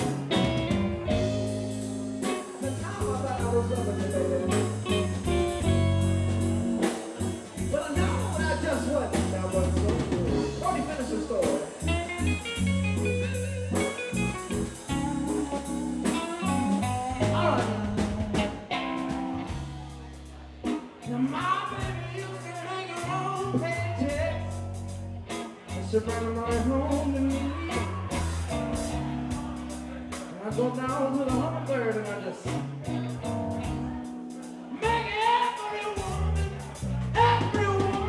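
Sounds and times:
bass guitar: 0:00.0 - 0:38.0
drum kit: 0:00.0 - 0:38.0
electric guitars: 0:00.0 - 0:38.0
man singing: 0:01.1 - 0:05.9, 0:06.8 - 0:11.9, 0:14.8 - 0:19.1, 0:20.7 - 0:24.8, 0:25.7 - 0:33.2, 0:34.5 - 0:38.0.

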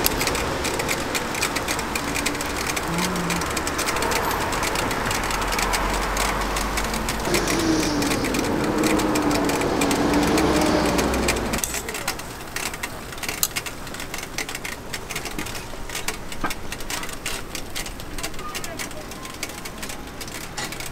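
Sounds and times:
engine hum: 0:00.0 - 0:20.9
street traffic rumble: 0:00.0 - 0:20.9.

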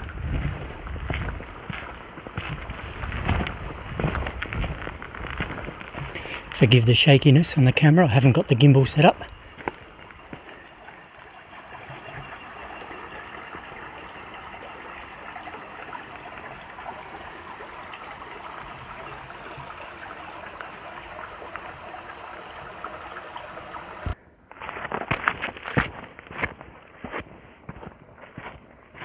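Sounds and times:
footsteps on dirt track: 0:00.0 - 0:06.8, 0:09.0 - 0:13.7, 0:24.5 - 0:29.0
creek trickling over stones: 0:00.0 - 0:27.8.

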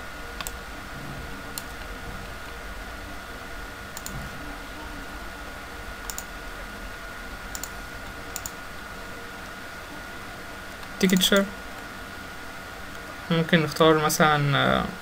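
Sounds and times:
faint electrical whine and hiss: 0:00.0 - 0:15.0
computer mouse clicks: 0:00.4 - 0:00.6, 0:03.9 - 0:04.2, 0:06.0 - 0:06.3, 0:07.5 - 0:08.6, 0:10.8 - 0:11.5.

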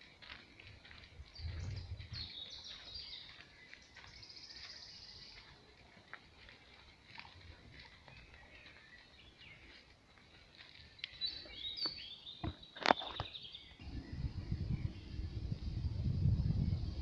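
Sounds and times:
songbirds chirping and singing: 0:00.1 - 0:17.0
low rumble: 0:00.7 - 0:02.4, 0:13.8 - 0:17.0.

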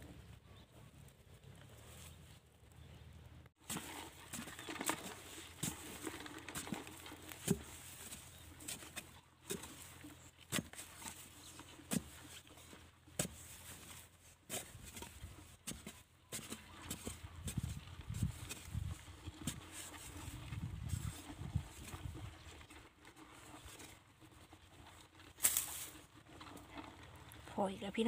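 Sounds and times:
digging tool knocking dry soil: 0:03.6 - 0:22.0, 0:25.4 - 0:26.0.

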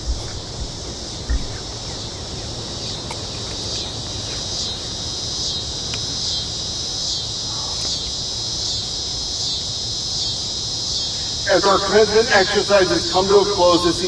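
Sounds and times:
insects chirring: 0:00.0 - 0:14.0.

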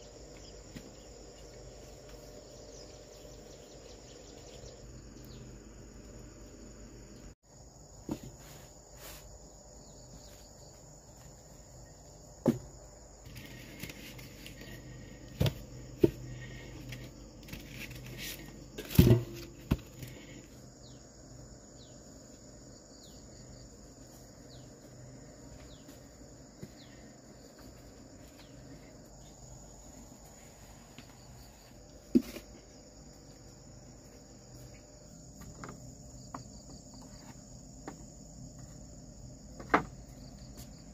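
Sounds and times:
high-pitched insect chorus: 0:00.0 - 0:40.9.

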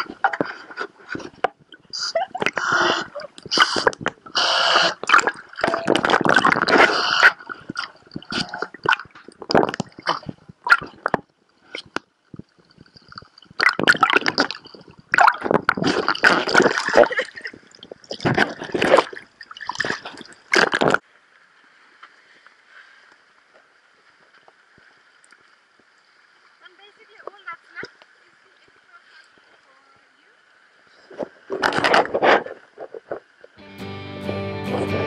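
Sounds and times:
water splashing and sloshing: 0:00.0 - 0:33.6
faint steady hiss: 0:19.1 - 0:33.6.

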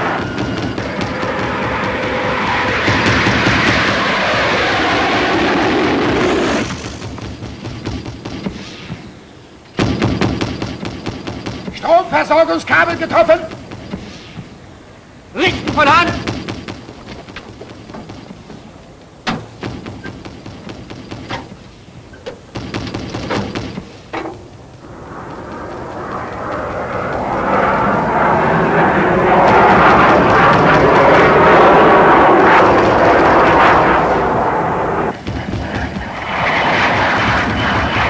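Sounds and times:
aircraft passing overhead: 0:00.0 - 0:09.6, 0:23.4 - 0:38.0.

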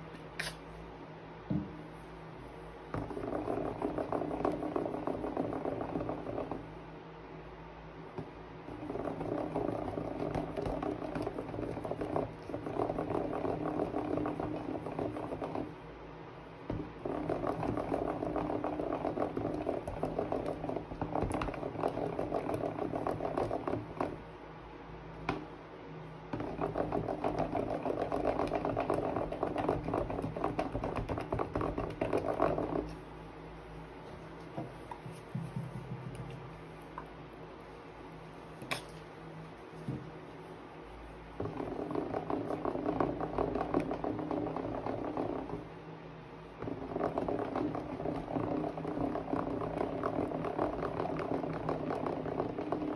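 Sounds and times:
spoon stirring wet slime: 0:00.4 - 0:00.7, 0:34.5 - 0:39.1.

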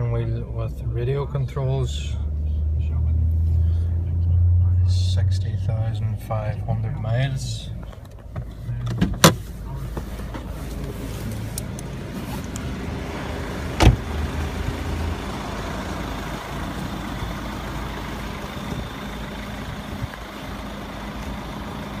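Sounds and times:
diesel car engine idling: 0:00.0 - 0:22.0
car door shutting: 0:08.0 - 0:12.6, 0:13.7 - 0:14.1.

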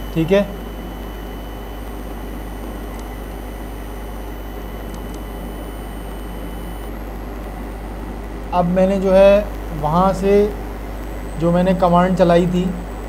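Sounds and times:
faint high-pitched whines: 0:00.0 - 0:13.0
low electrical hum: 0:00.0 - 0:13.0
faint clicks: 0:02.6 - 0:08.4.

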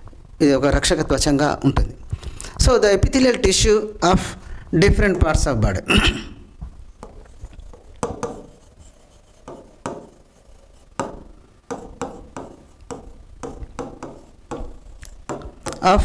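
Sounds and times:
stylus tapping on glass screen: 0:11.0 - 0:15.9.

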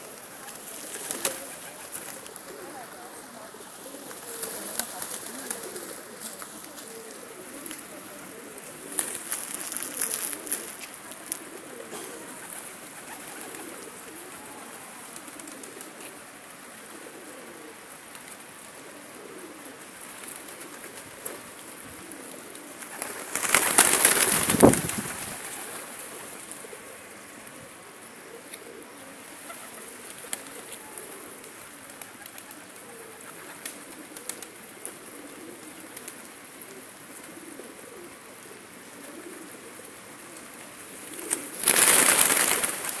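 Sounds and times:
pigeons cooing: 0:00.0 - 0:43.0
wings flapping: 0:00.1 - 0:03.0, 0:03.8 - 0:11.6, 0:12.2 - 0:15.9, 0:22.7 - 0:26.6, 0:29.3 - 0:35.0, 0:41.1 - 0:43.0.

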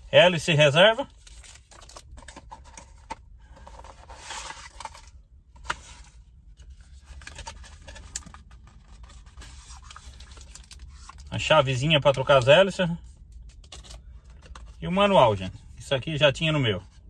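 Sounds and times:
low steady hum: 0:00.0 - 0:17.0
packaging rustling: 0:01.1 - 0:11.3.

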